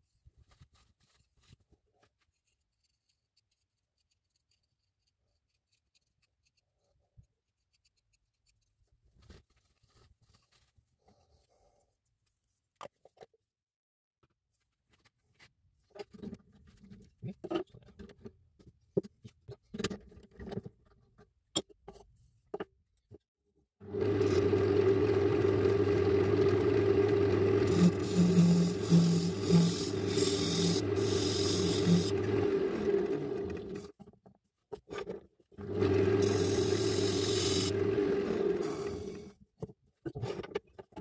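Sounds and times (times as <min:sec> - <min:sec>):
tool scraping spinning wood: 0:23.8 - 0:33.9, 0:35.6 - 0:39.3
wood lathe humming: 0:23.9 - 0:33.9, 0:35.6 - 0:39.3.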